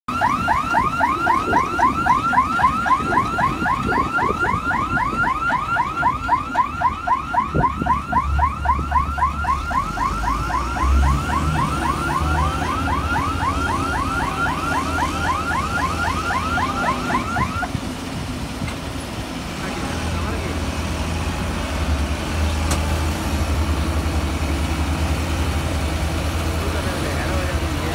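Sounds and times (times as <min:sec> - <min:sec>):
electronic warning alarm chirps: 0:00.1 - 0:17.7
combine harvester engine running: 0:00.1 - 0:27.9.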